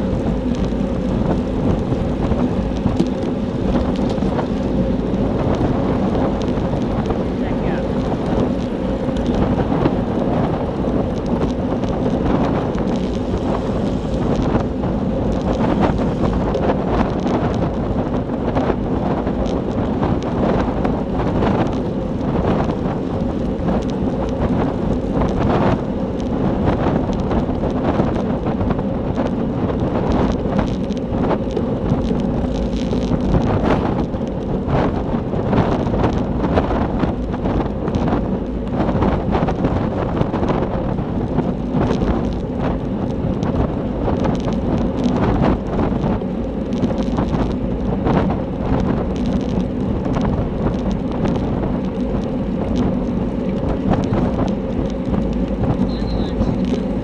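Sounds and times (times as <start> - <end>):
wind rushing over microphone: 0.0 - 57.0
low drone: 19.6 - 57.0.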